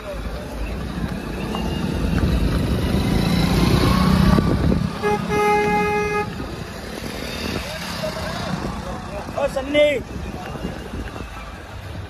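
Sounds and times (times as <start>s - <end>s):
small motorcycle engines rumbling: 0.0s - 12.0s
vehicle horn toot: 5.0s - 6.4s.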